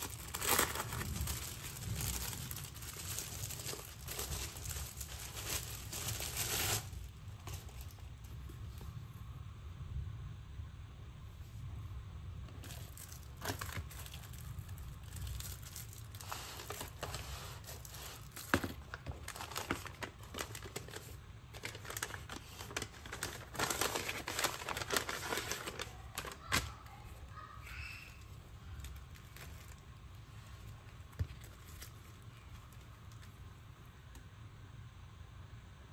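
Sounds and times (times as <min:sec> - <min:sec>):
paper and plastic packaging crinkling: 0:00.0 - 0:08.8, 0:12.5 - 0:33.6
steady low hum: 0:00.0 - 0:35.9.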